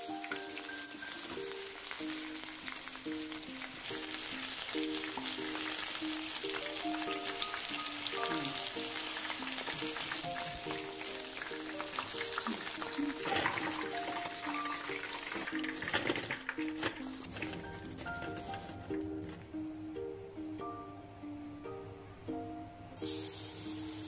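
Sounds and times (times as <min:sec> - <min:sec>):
chicken deep-frying in hot oil: 0:00.0 - 0:19.2, 0:23.0 - 0:24.0
background music: 0:00.0 - 0:24.0.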